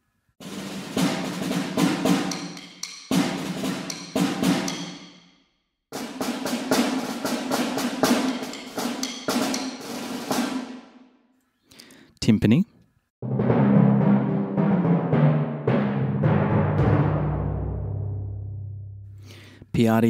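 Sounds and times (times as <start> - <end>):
field drum strokes and rolls: 0.4 - 5.1, 5.9 - 10.8, 13.2 - 18.7
snare drum: 0.4 - 5.2, 5.9 - 11.0, 13.2 - 18.0.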